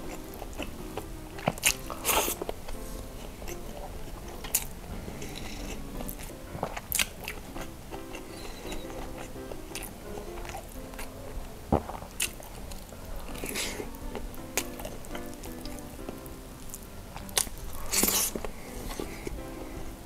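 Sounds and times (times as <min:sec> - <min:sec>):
chewing sausage: 0:00.0 - 0:20.0
soft background music: 0:00.0 - 0:20.0.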